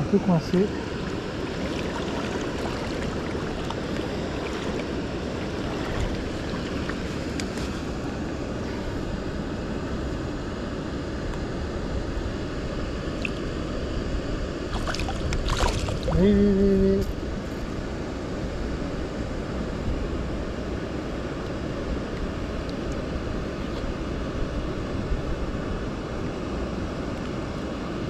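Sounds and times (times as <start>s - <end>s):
steady rushing noise: 0.0s - 28.0s.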